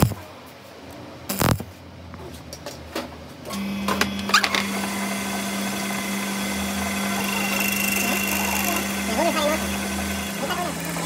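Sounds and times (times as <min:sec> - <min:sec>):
metal lathe running: 0:03.6 - 0:11.0.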